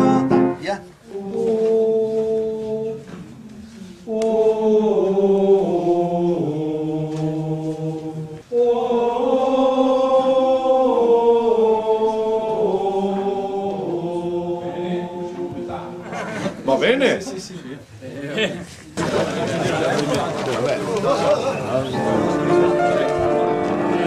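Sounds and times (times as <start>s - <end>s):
choir singing: 1.0s - 16.5s, 21.6s - 24.0s.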